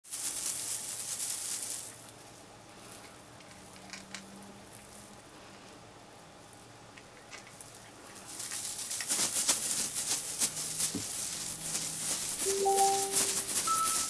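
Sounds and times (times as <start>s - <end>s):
high rustling: 7.7s - 14.0s.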